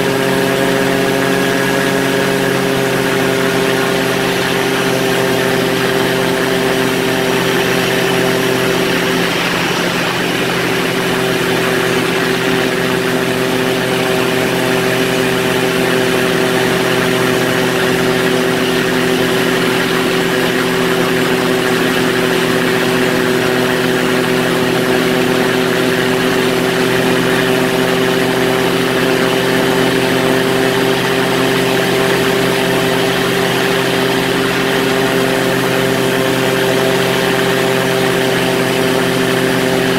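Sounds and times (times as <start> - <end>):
ultralight engine and propeller: 0.0 - 39.9.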